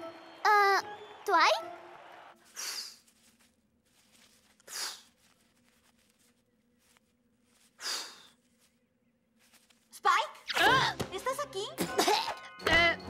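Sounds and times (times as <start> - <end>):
short puffs of breath: 2.5 - 3.0, 4.6 - 5.1, 7.7 - 8.4.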